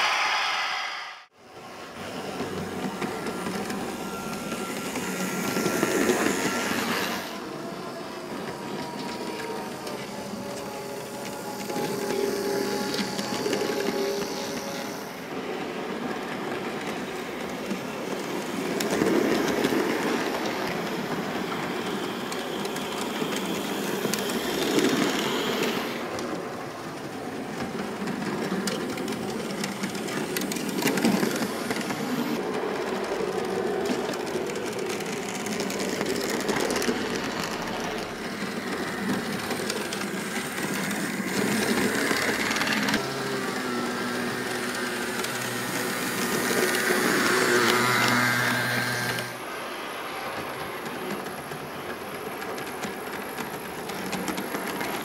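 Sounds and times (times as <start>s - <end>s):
small electric motors whirring: 2.0s - 15.2s, 18.0s - 26.4s, 34.1s - 49.4s.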